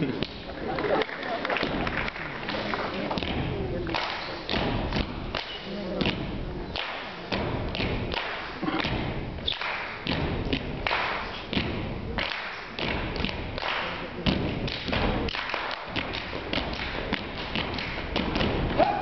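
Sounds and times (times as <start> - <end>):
feet stomping on wooden stage: 3.0 - 3.8, 4.5 - 5.4, 7.3 - 9.4, 10.0 - 12.2, 12.8 - 19.0.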